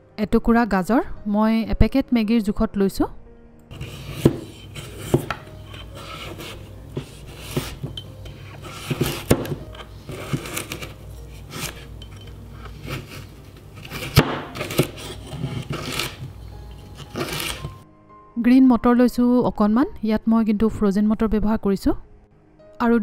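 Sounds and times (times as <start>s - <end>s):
knife chopping on wooden board: 3.7s - 17.8s.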